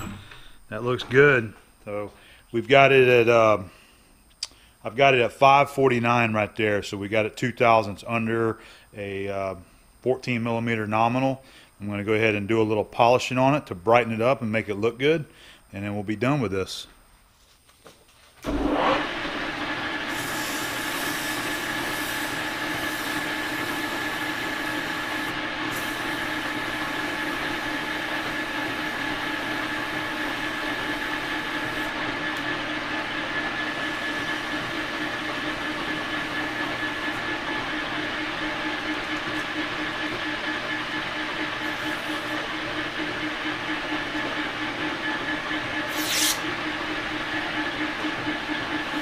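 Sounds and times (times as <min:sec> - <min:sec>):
metal lathe gear whine: 0:00.0 - 0:01.6, 0:18.4 - 0:49.0
abrasive cloth hissing on shaft: 0:20.0 - 0:28.8, 0:45.8 - 0:46.5.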